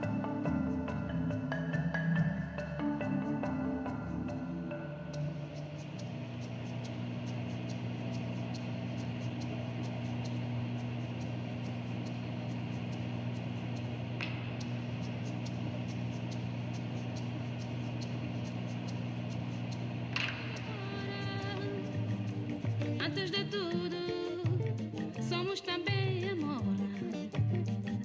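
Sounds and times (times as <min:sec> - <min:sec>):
low electronic drone: 0:00.0 - 0:23.1
soft ticks: 0:05.1 - 0:23.1.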